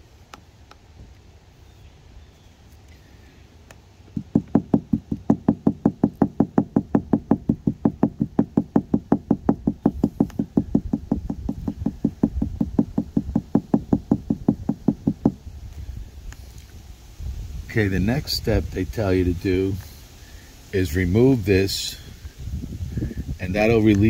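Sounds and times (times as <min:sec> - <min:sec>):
gloved hand tapping on windshield: 0:04.1 - 0:15.4.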